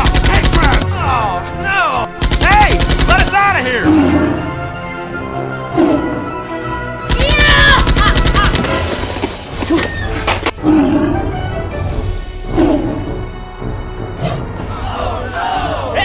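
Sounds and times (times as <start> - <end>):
music: 0.0 - 16.0
automatic gunfire: 2.2 - 3.3, 7.1 - 8.9.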